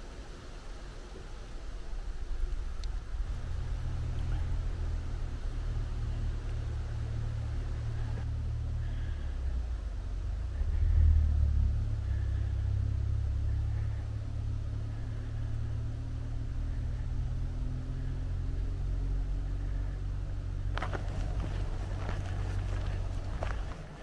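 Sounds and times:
wind buffeting microphone: 20.6 - 24.0
footsteps on gravel trail: 20.7 - 24.0.

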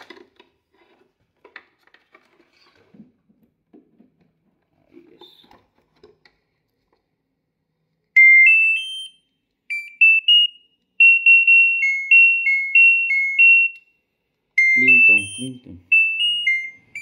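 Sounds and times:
two-pitch beeps: 8.2 - 13.8, 14.6 - 17.0
electronic buzzer chime: 14.6 - 17.0.

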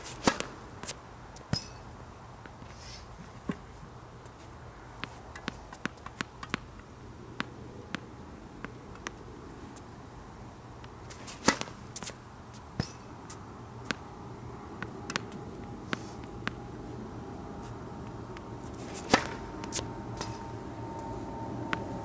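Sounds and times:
racket hitting ball: 0.0 - 1.9, 5.0 - 9.2, 10.8 - 14.1, 14.7 - 16.8, 18.0 - 20.6
steady low hum: 0.0 - 22.0
tennis ball bouncing on court: 5.0 - 9.2, 10.8 - 12.2, 12.8 - 14.1, 14.8 - 16.6, 18.4 - 20.4.

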